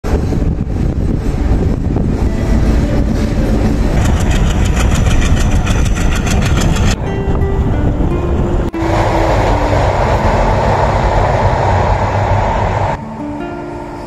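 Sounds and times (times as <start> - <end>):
train engine and wheels rumbling: 0.0 - 14.0
wheels clattering on rails: 2.5 - 7.0.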